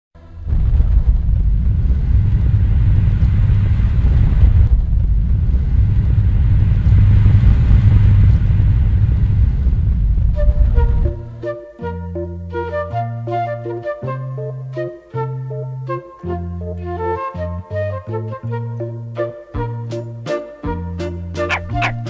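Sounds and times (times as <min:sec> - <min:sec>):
deep rumbling drone: 0:00.2 - 0:11.5.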